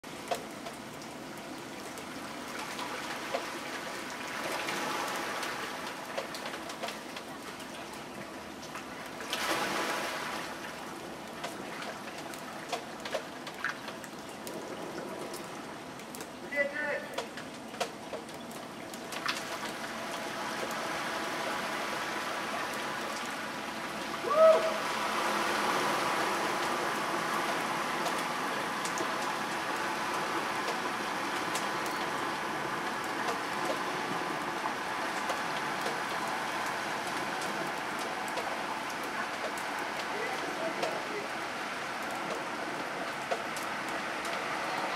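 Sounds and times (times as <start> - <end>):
water churning: 0.0 - 16.4, 17.2 - 44.9
floodwater trickling: 0.0 - 44.9
rising and falling call: 24.2 - 24.9.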